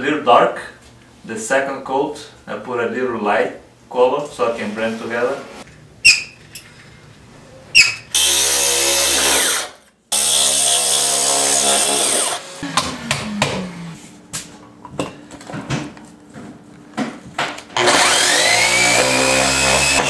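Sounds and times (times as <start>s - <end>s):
core drill boring into stone: 8.1s - 12.6s, 17.8s - 20.0s
motor winding down: 17.8s - 20.0s.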